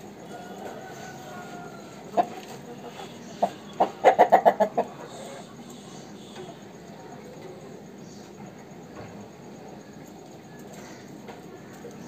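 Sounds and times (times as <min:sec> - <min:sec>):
rooster clucking: 0:00.3 - 0:05.6.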